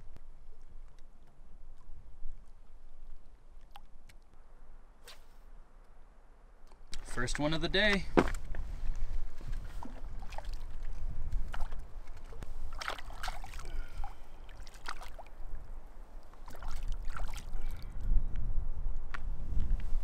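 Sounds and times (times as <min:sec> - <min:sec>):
wind rumble on microphone: 0:07.7 - 0:14.5, 0:15.1 - 0:20.0
fish splashing in water: 0:11.5 - 0:15.4, 0:16.4 - 0:17.8.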